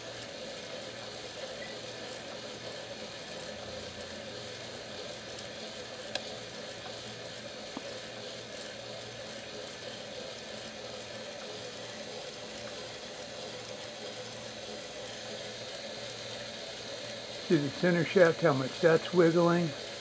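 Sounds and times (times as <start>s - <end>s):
small electric motor humming: 0.0s - 20.0s.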